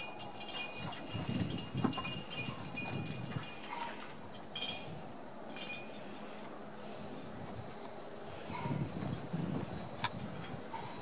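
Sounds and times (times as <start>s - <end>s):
small metal bells jingling: 0.0s - 3.9s.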